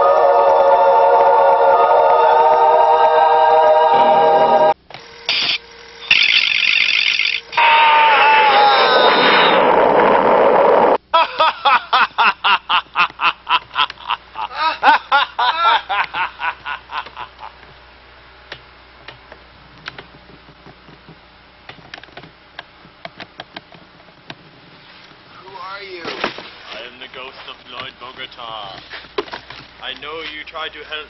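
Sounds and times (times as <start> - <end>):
person laughing: 11.1 - 17.7.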